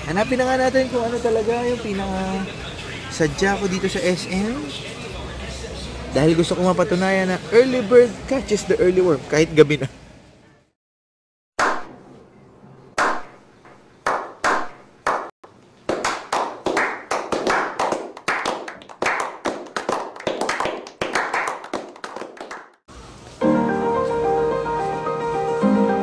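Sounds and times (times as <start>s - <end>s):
men clapping: 14.0s - 15.3s, 15.9s - 22.8s.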